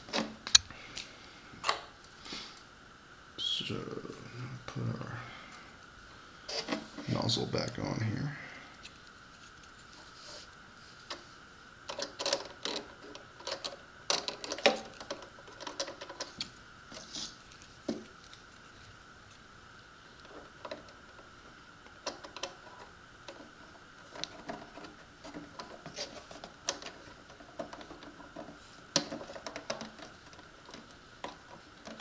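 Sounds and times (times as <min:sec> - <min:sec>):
faint high hum: 0:00.0 - 0:32.0
plastic parts clicking and tapping: 0:11.9 - 0:16.5, 0:22.0 - 0:32.0.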